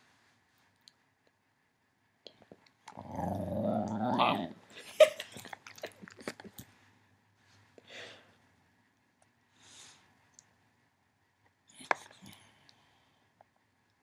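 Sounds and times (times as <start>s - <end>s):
dog growling: 2.9s - 4.6s
short breath: 7.8s - 8.4s.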